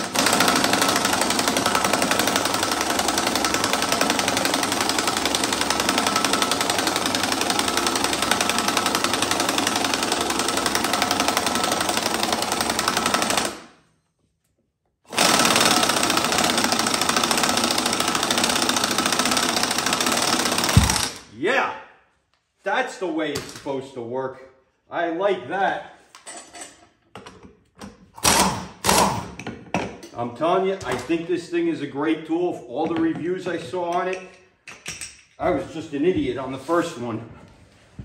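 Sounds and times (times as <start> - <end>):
cordless impact wrench hammering: 0.0 - 13.8, 15.1 - 21.3, 27.8 - 30.1.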